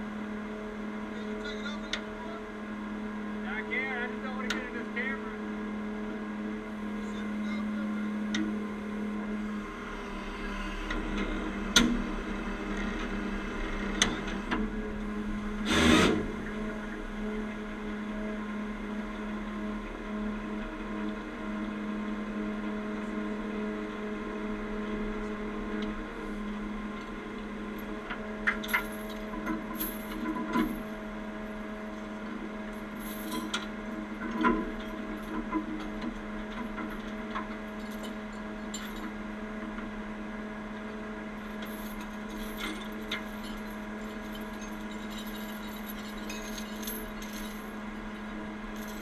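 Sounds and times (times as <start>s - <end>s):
truck engine running: 0.0s - 49.0s
metal clinks: 28.4s - 31.0s, 32.8s - 35.9s, 36.6s - 39.2s, 41.4s - 49.0s.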